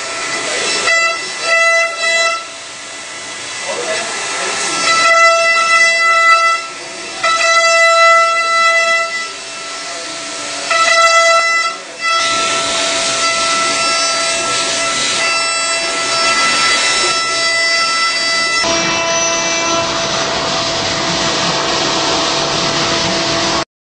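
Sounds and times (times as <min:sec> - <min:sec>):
milling machine cutting metal: 0:00.0 - 0:23.6.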